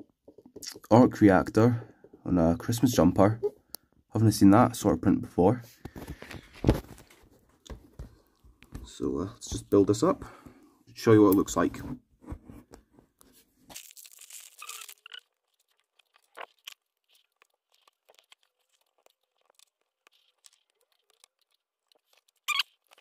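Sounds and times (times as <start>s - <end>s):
plastic bag tearing and crinkling: 13.7s - 23.0s.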